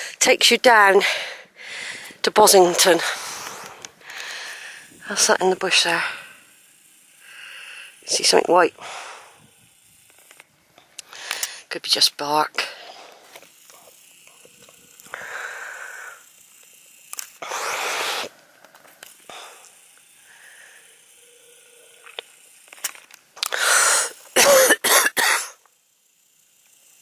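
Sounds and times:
person coughing: 24.4 - 25.6.

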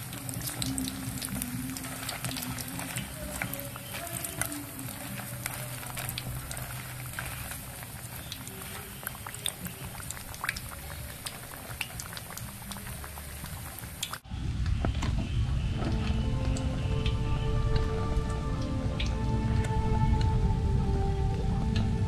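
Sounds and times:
hot oil sizzling and crackling: 0.0 - 14.7
music: 0.0 - 22.0.

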